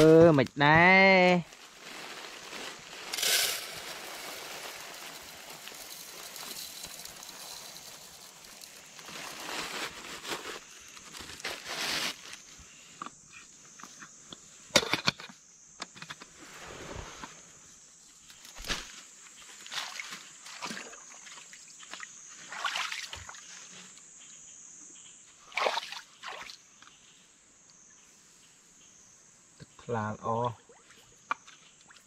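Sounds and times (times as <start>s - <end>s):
steady hiss: 0.0s - 20.4s
rustling and crackling handling: 1.4s - 12.5s.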